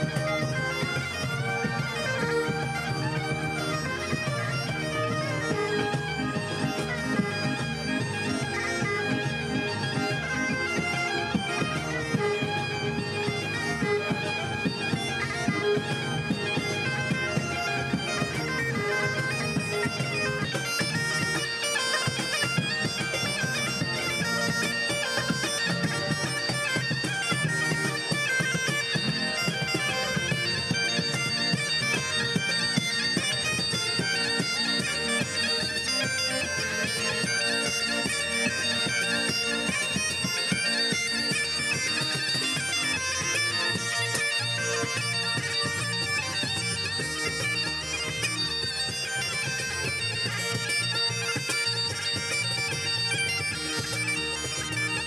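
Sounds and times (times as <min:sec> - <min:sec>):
accordion: 0:00.0 - 0:55.0
bagpipes playing lively tune: 0:00.0 - 0:55.0
fiddle: 0:00.0 - 0:55.0
cajon beat: 0:09.0 - 0:44.2.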